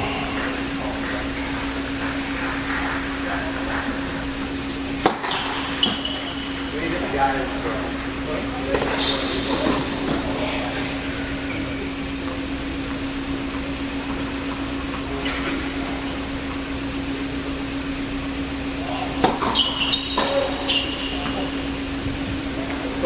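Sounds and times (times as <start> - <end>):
ventilation hum: 0.0 - 23.0
shoes squeaking on court: 0.2 - 6.7, 8.8 - 10.3, 18.9 - 21.8
tennis ball hits and bounces: 5.0 - 5.6.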